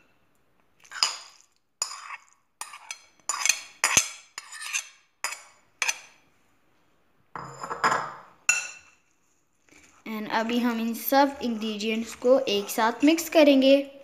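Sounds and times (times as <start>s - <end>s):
metal spoon clinking on glass bowls: 7.4s - 9.0s.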